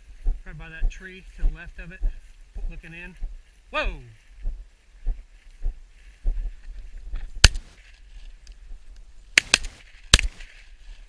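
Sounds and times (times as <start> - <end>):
shotgun shots: 7.4 - 7.7, 9.4 - 10.4.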